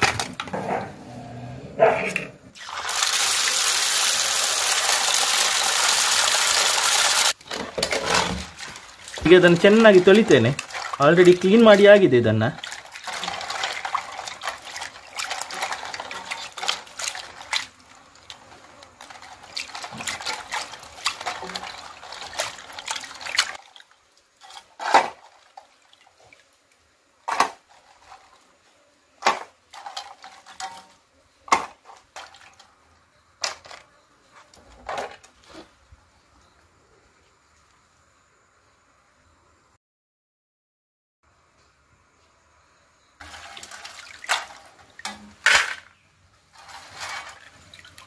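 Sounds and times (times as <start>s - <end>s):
water sloshing in a steel bowl: 7.4s - 26.5s, 29.3s - 32.8s, 43.2s - 45.8s, 46.5s - 48.0s.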